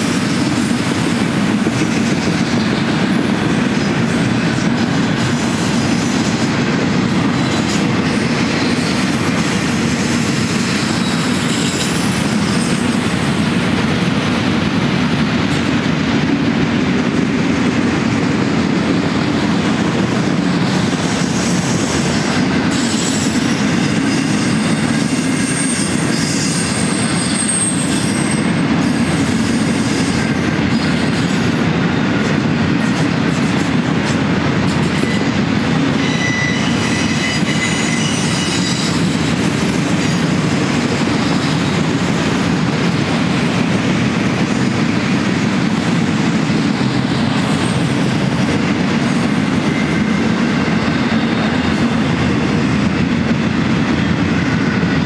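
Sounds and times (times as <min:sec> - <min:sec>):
steel wheels rumbling on rails: 0:00.0 - 0:55.0
high wheel squeals: 0:05.2 - 0:13.4, 0:21.1 - 0:31.2, 0:34.8 - 0:42.2.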